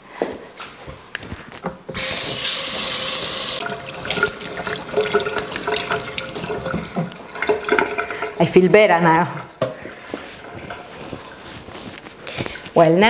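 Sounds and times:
water running into steel sink: 2.0 - 9.5
hands washing under water: 2.0 - 12.7.

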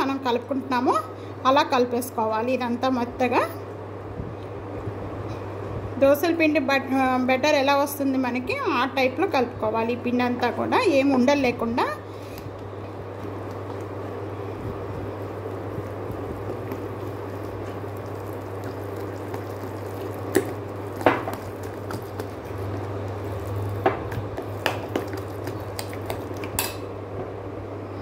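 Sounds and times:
steady low hum: 0.0 - 28.0
spoon stirring thick paste: 12.2 - 26.8.

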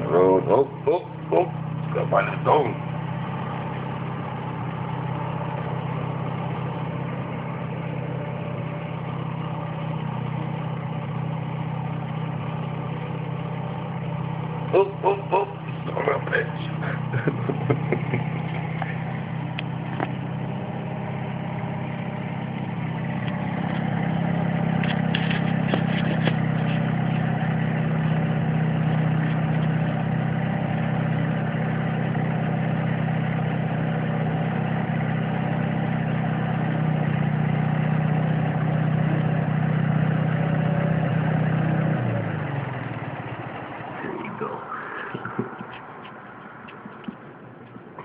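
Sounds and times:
riding lawn mower engine: 0.0 - 48.0
clicks: 45.1 - 48.0.

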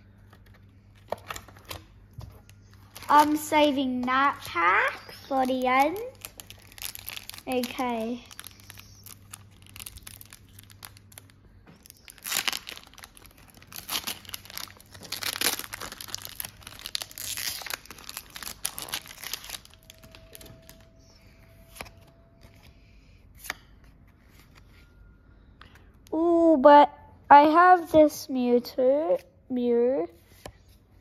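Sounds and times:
foil wrapper tearing and crinkling: 2.8 - 21.1.

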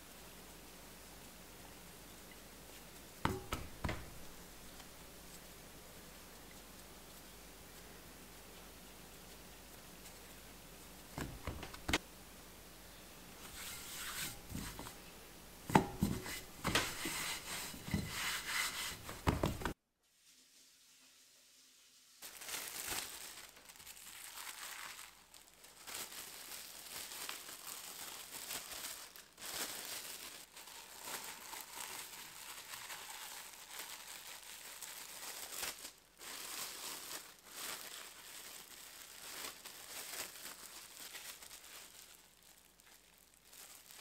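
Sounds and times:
plastic bag crinkling: 3.3 - 4.9, 11.1 - 12.0, 22.2 - 44.0.

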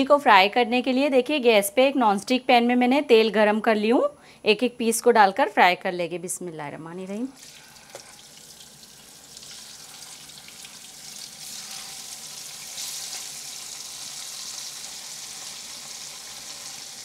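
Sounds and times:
fish sizzling in hot oil: 7.4 - 17.0.

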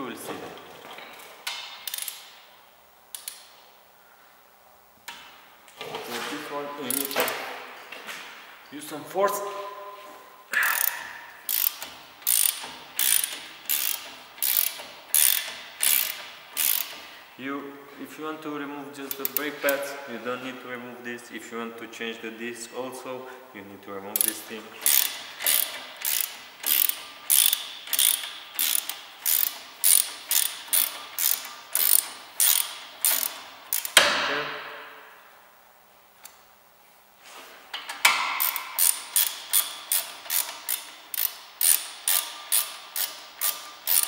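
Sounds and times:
ratchet wrench clicking: 1.8 - 2.4, 6.9 - 7.3, 10.6 - 17.1, 19.1 - 19.5, 24.2 - 34.0, 38.3 - 44.0.

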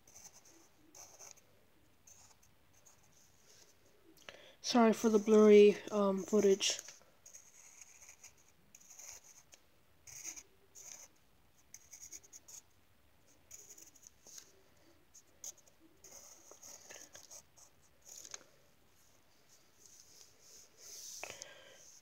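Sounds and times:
pencil scratching on paper: 0.0 - 1.4, 4.8 - 9.5, 10.1 - 11.1, 11.7 - 12.6, 13.5 - 14.5, 15.2 - 18.4.

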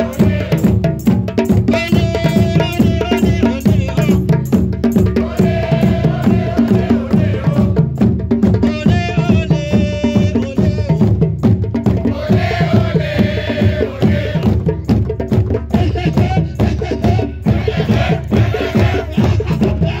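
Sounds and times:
voices chanting: 0.0 - 0.9, 5.2 - 7.9, 12.1 - 14.6, 15.8 - 20.0
hand drums playing: 0.0 - 20.0.

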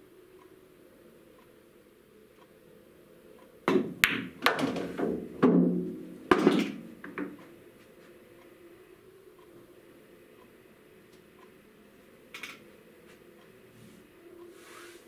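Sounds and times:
pool balls clacking: 3.7 - 7.4.

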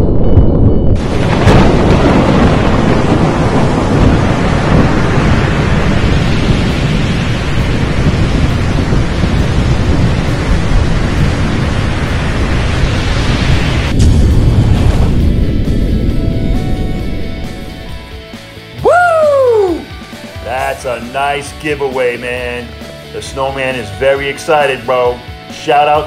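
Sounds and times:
thunder: 0.0 - 18.2
sharp thunder crack: 0.0 - 18.4
loud rushing noise: 0.0 - 21.2.

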